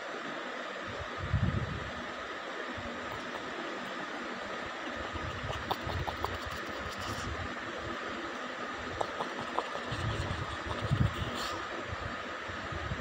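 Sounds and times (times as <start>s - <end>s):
outdoor ambient hiss: 0.0s - 13.0s
wind buffeting microphone: 9.5s - 11.5s.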